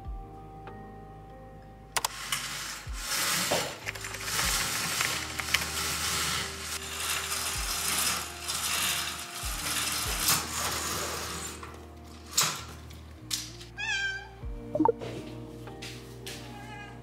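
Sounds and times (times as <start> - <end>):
roller blind chain rattling: 2.1 - 12.8
cat meowing: 13.8 - 14.4, 16.5 - 17.0.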